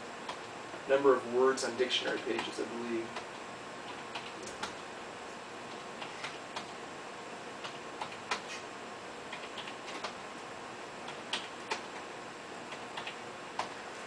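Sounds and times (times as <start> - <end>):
keyboard keys clicking: 2.0 - 4.8, 9.3 - 10.2, 11.1 - 12.1, 12.7 - 13.8.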